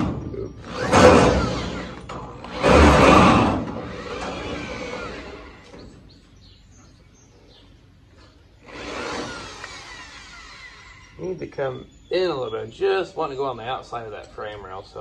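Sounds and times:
drill driving screw into metal: 0.0 - 5.6, 8.7 - 11.2
faint bird chirps: 10.8 - 13.8.

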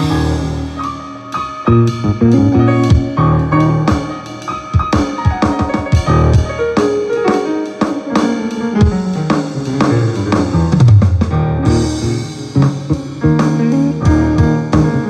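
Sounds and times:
bass line: 0.0 - 4.1, 6.0 - 6.6, 9.8 - 15.0
guitar: 0.0 - 6.6
drum kit beat: 0.0 - 15.0.

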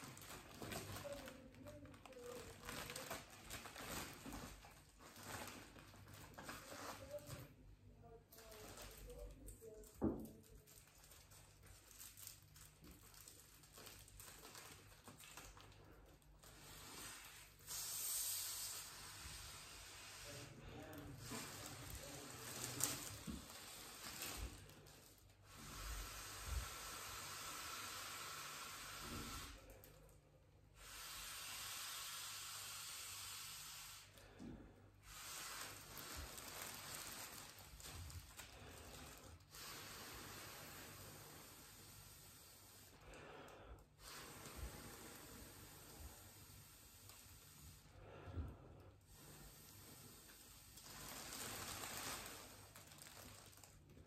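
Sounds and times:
foil balloon crinkling: 0.0 - 30.2, 35.0 - 43.4, 49.1 - 54.0
air hissing into balloon: 16.4 - 29.9, 30.7 - 52.7.

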